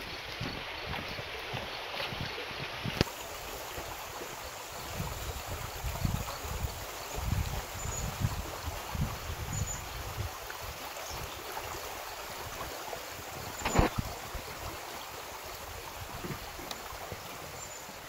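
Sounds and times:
stream water rushing: 0.0 - 18.0
sharp knock: 13.6 - 14.0.

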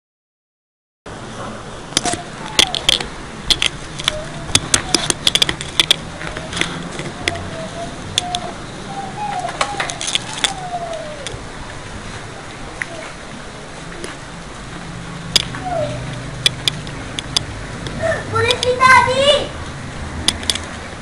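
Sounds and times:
handling clicks and knocks: 2.0 - 7.5, 9.4 - 11.4.

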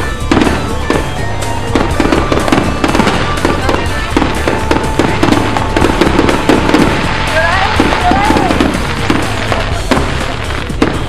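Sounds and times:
fireworks bangs and crackles: 0.0 - 11.0
music playing: 0.0 - 11.0.

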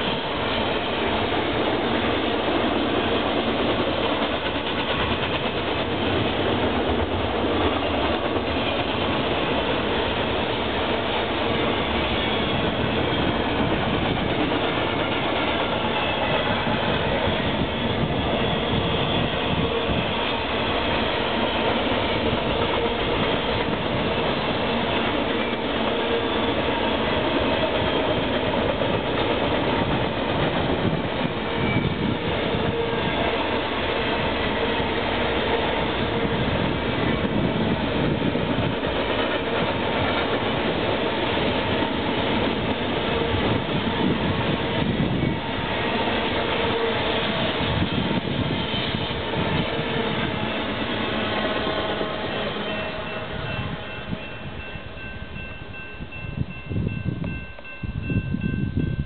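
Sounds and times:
freight train wheels rumbling: 0.0 - 59.0.

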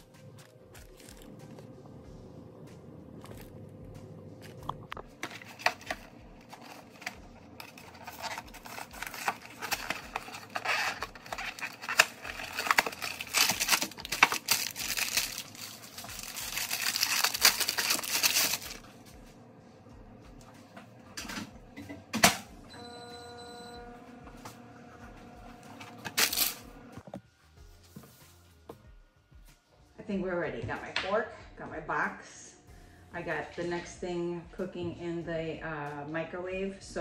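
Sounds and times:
plastic wrap crinkling and tearing: 0.7 - 1.7, 5.2 - 18.8.

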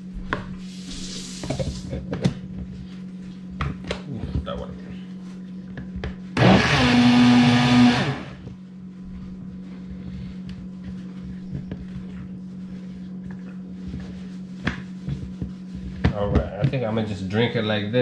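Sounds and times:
blender running: 6.4 - 8.5.

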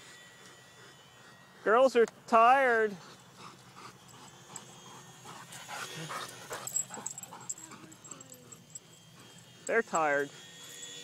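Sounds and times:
dog panting: 2.9 - 9.5.

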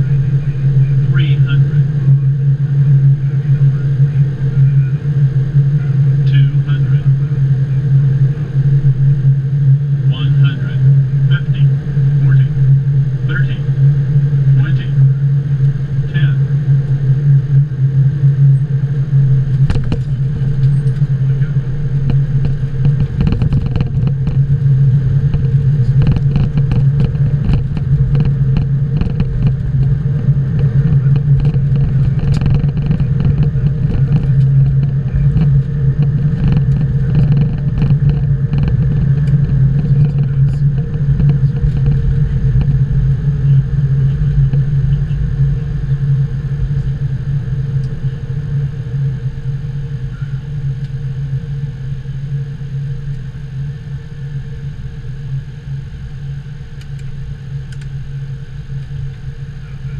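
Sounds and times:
loud steady hum: 0.0 - 59.9
low rumble: 0.0 - 59.9
knocks and rattles: 19.6 - 21.0, 22.1 - 24.4, 25.3 - 29.9, 30.6 - 42.8.

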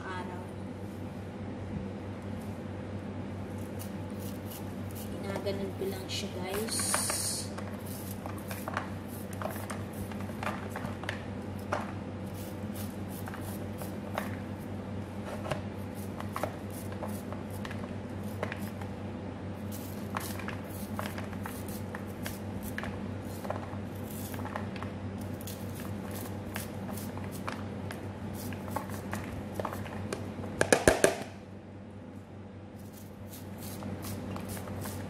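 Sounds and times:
steady low hum: 0.0 - 35.0
knife cutting corn kernels: 3.6 - 5.7, 6.4 - 11.0, 12.3 - 14.4, 19.7 - 24.5, 25.2 - 27.6, 32.8 - 35.0.

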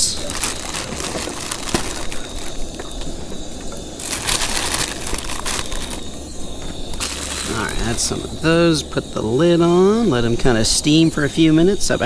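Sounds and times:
beans crackling in a pan: 0.0 - 8.4.

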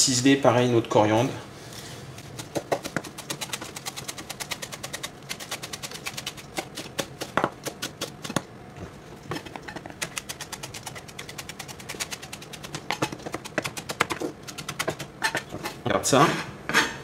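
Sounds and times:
knife chopping on plastic board: 2.4 - 3.7, 12.6 - 15.1.

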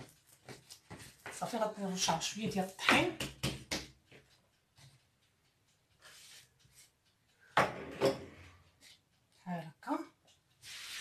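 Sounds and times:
object knocking on counter: 7.6 - 8.2
faint brushing hiss: 10.6 - 11.0.

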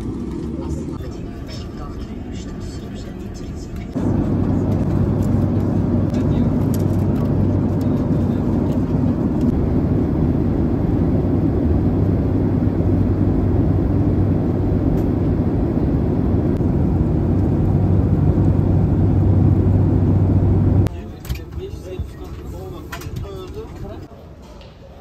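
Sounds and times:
airliner cabin rush: 0.0 - 24.1
constant low hum: 0.0 - 24.1.

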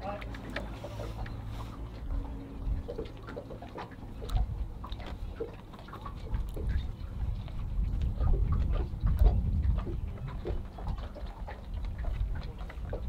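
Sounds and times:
low rumble: 0.2 - 13.0.

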